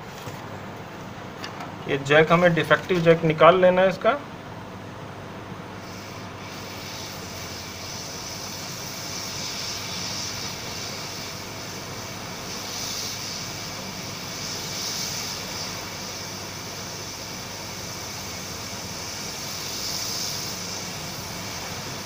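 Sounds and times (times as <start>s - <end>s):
hot-air station blowing hiss: 5.7s - 22.0s.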